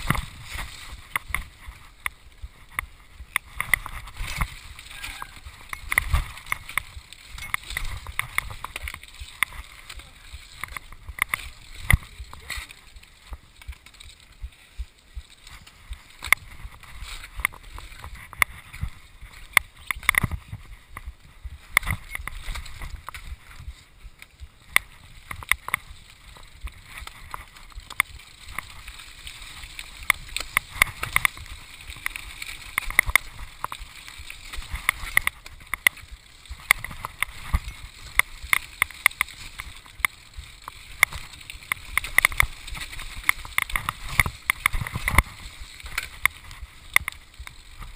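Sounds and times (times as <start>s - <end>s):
bike knocking and rattling: 0.0s - 47.9s
bike tyres rumbling on dirt: 0.0s - 47.9s
wind: 0.0s - 47.9s.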